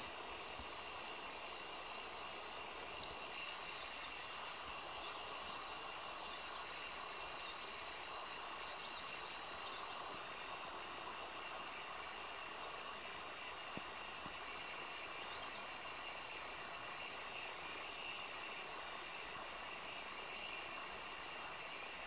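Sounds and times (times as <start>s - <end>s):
steady background noise: 0.0s - 22.0s
swallow chirping and twittering: 0.8s - 2.4s, 3.0s - 10.3s, 11.0s - 11.7s, 17.2s - 18.2s.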